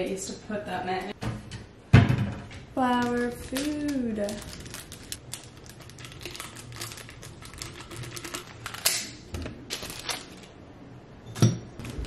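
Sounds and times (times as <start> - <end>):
plastic wrapping crinkling: 2.8 - 10.6.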